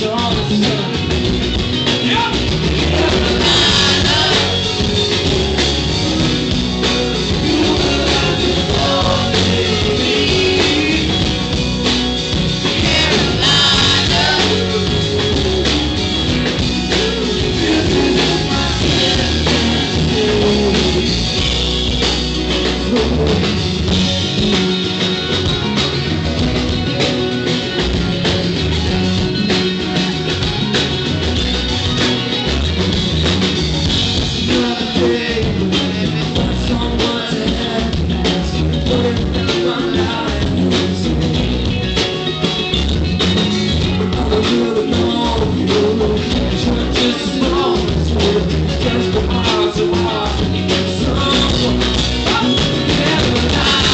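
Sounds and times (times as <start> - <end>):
drum kit: 0.0 - 53.9
person singing: 2.0 - 21.7, 34.4 - 42.2, 44.0 - 53.9.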